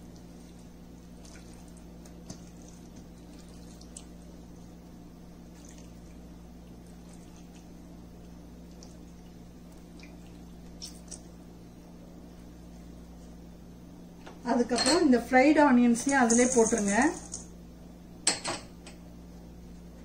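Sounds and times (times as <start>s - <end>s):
wet chicken squelches and drips: 0.0s - 4.4s, 5.4s - 11.3s
steady low hum: 0.0s - 20.0s.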